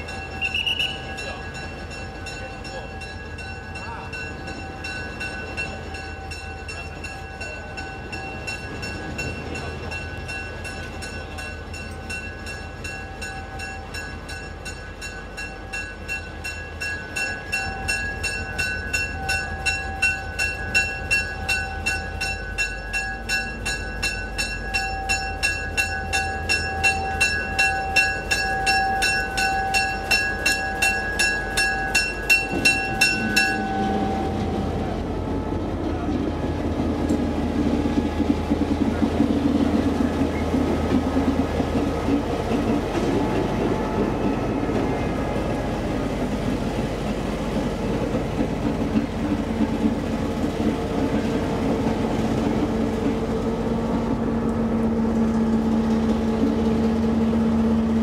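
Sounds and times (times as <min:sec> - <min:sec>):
warning bell ringing: 0:00.0 - 0:35.7
diesel locomotive engine: 0:00.0 - 0:58.0.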